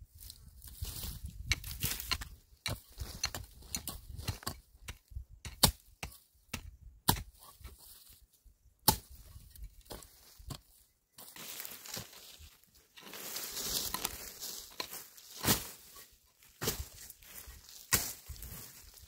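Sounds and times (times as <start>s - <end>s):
hoe chopping into soil: 1.5s - 7.8s, 8.8s - 10.6s, 14.8s - 16.0s, 16.6s - 17.1s, 17.8s - 18.5s.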